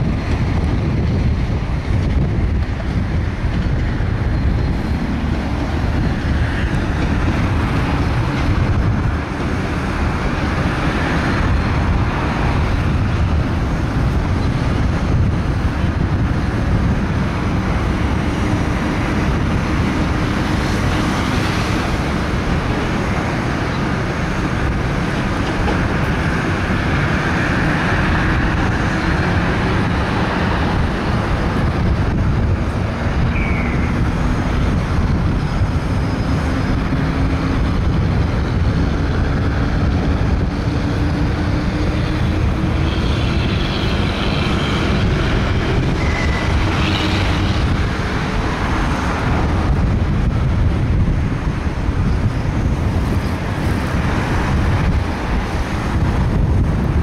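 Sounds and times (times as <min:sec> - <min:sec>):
diesel train rumbling: 0:00.0 - 0:57.0
traffic noise: 0:00.0 - 0:57.0.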